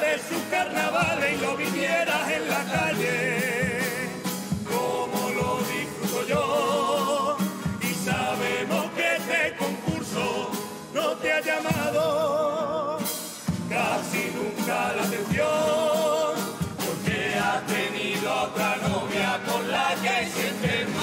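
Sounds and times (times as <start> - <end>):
guitars and steady beat: 0.0 - 21.0.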